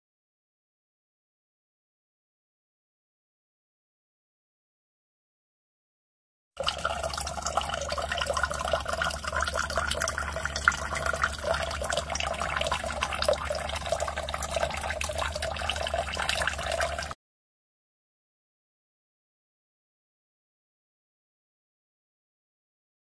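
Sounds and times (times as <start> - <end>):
water trickling into glass cup: 6.6 - 17.2.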